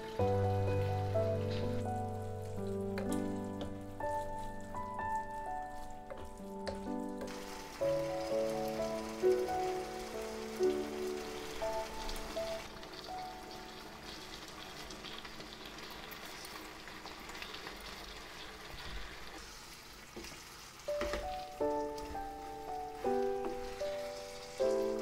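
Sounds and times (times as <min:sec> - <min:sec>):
soft background music: 0:00.0 - 0:16.8, 0:20.6 - 0:25.0
food sizzling in frying pan: 0:00.0 - 0:25.0
wooden spatula knocking and scraping: 0:02.6 - 0:07.6.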